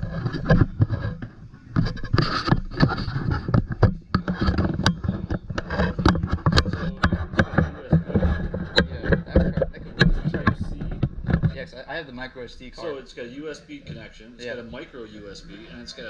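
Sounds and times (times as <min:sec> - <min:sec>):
microphone handling noise: 0:00.0 - 0:11.8.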